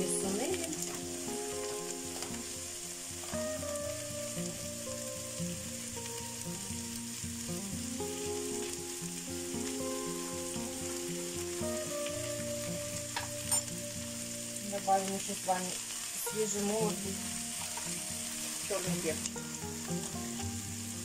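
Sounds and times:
soft background music: 0:00.0 - 0:21.0
vegetables sizzling: 0:00.0 - 0:21.0.

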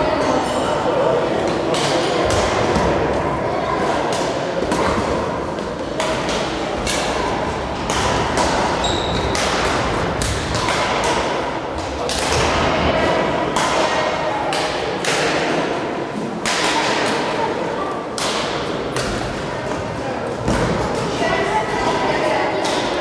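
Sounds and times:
murmur of voices: 0:00.0 - 0:23.0
rackets hitting shuttlecocks: 0:04.0 - 0:17.4, 0:18.1 - 0:19.8.

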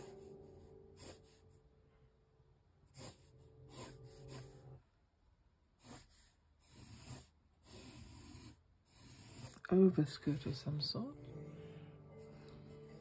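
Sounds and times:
pencil scratching on paper: 0:00.0 - 0:01.7, 0:02.9 - 0:04.8, 0:05.7 - 0:10.6.

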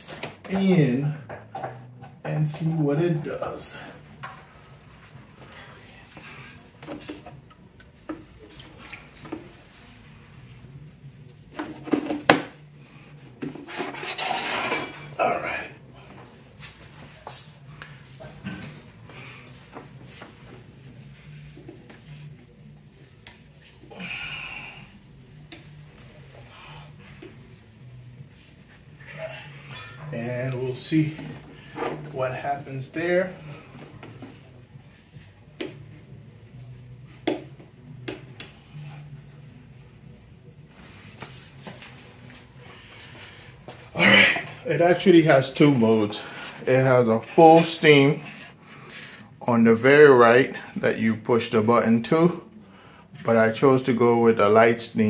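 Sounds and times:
appliance scraping across floor: 0:13.6 - 0:15.1.

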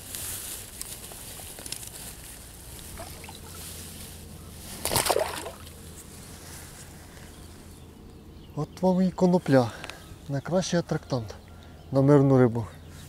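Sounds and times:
handling rustles: 0:00.0 - 0:07.6
water splash: 0:03.0 - 0:03.6, 0:04.8 - 0:05.7.

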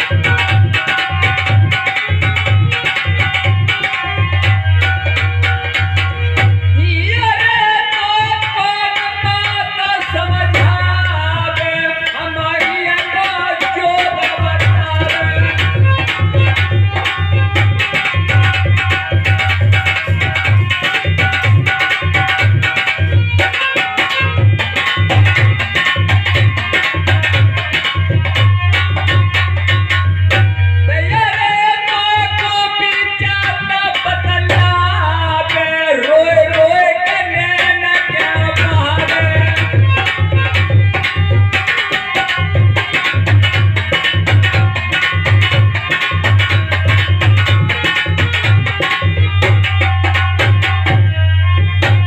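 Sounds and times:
hand drum fast beat: 0:14.6 - 0:30.5.

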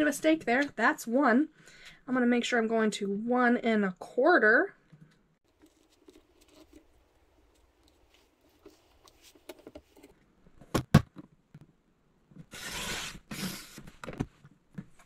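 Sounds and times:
paper trimmer sliding scrape: 0:12.5 - 0:13.8.

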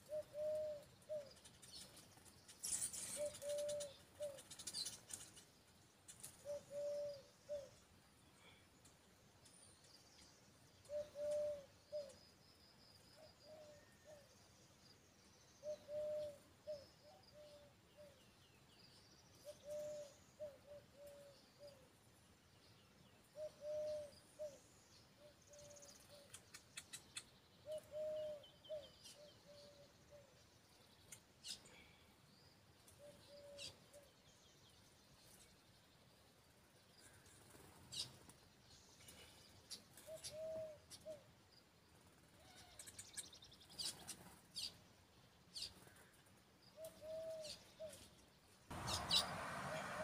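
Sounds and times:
birds chirping and chattering: 0:00.0 - 0:50.0
bird's low call: 0:02.9 - 0:04.4, 0:06.4 - 0:07.8, 0:10.9 - 0:12.2, 0:23.4 - 0:30.4, 0:46.8 - 0:48.0, 0:48.7 - 0:50.0.

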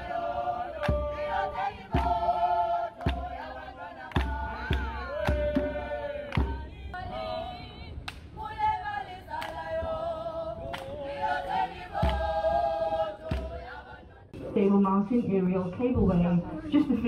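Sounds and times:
choir singing long notes: 0:00.0 - 0:14.5
sharp drum-like beats: 0:00.4 - 0:06.8.

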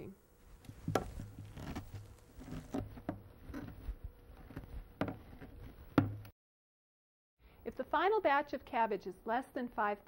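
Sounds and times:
cabbage squishing under pressing: 0:00.6 - 0:05.7.

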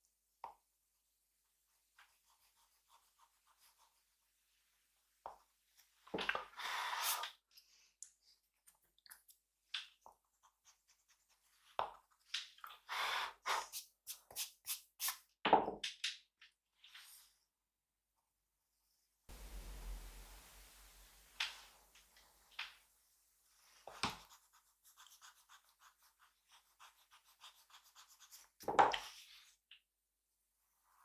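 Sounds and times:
pencil scratching on paper: 0:02.0 - 0:04.2, 0:23.8 - 0:29.5.

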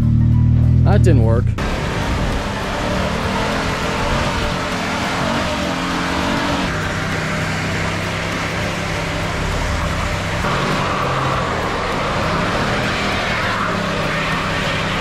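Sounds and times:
truck engine revving high: 0:00.0 - 0:15.0.

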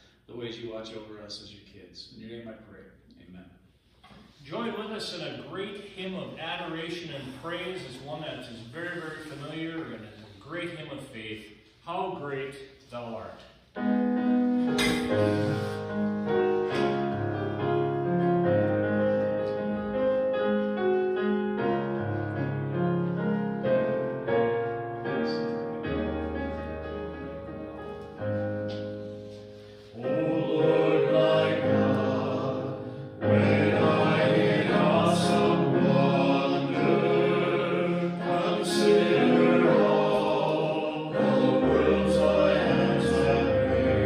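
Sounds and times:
keyboard playing hymn chords: 0:13.8 - 0:44.0
group of voices singing: 0:29.9 - 0:44.0.

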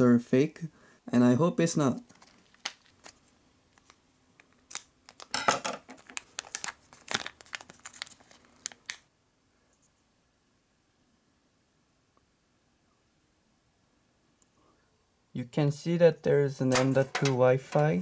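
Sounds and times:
foil bag crinkling: 0:02.1 - 0:04.0, 0:05.0 - 0:09.0.

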